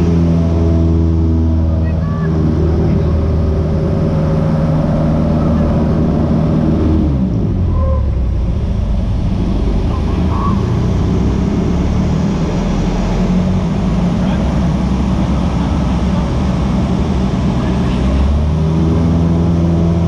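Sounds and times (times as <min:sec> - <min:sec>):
aircraft engine droning in cabin: 0:13.6 - 0:18.3.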